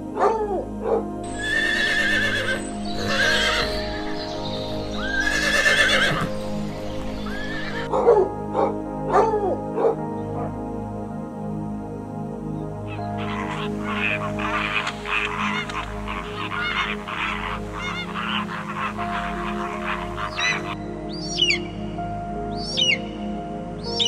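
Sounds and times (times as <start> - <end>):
background music: 0.0 - 24.0
dog barks: 0.2 - 1.0, 7.9 - 10.6
horses whinnying: 1.3 - 7.9, 13.2 - 20.8.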